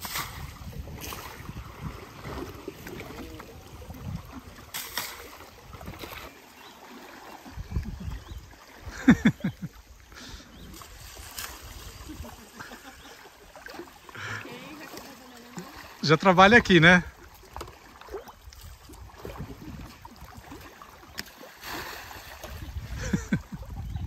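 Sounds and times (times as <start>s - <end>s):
river water splashing: 0.0s - 24.0s.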